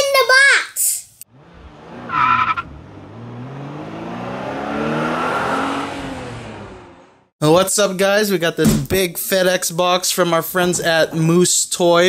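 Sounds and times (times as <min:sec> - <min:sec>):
car engine accelerating: 0:01.2 - 0:07.3
tyre squeal: 0:02.0 - 0:02.7.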